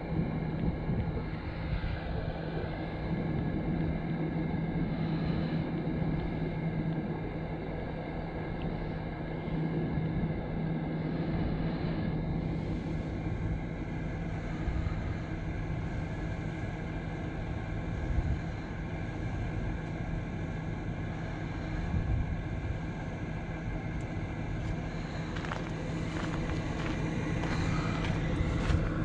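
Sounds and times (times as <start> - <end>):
vehicle engine idling: 0.0 - 29.0
footsteps on gravel: 24.6 - 29.0.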